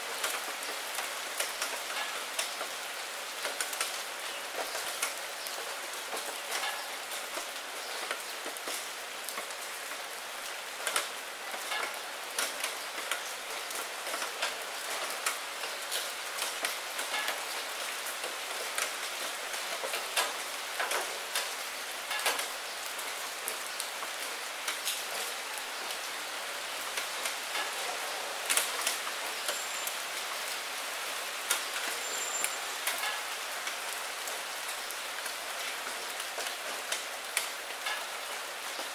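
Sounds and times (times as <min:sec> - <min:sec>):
steady rain on wet surface: 0:00.0 - 0:38.9.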